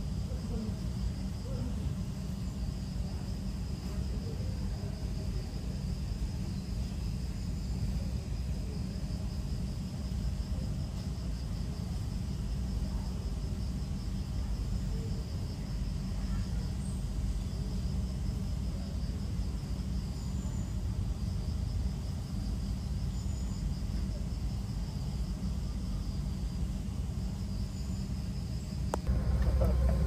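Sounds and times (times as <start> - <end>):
insects trilling: 0.0 - 30.0
low rumble: 29.0 - 30.0.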